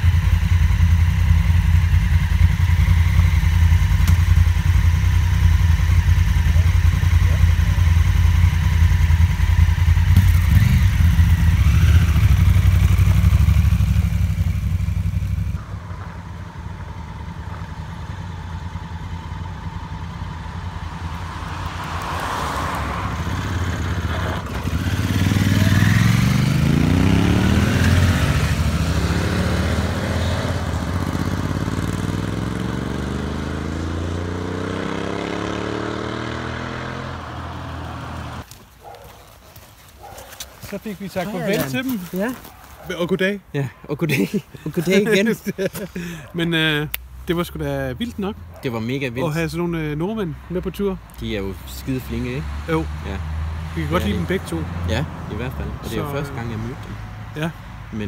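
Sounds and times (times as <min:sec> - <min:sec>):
motorcycle engine idling: 0:00.0 - 0:20.9
motorcycles accelerating: 0:00.0 - 0:38.5, 0:44.1 - 0:58.0.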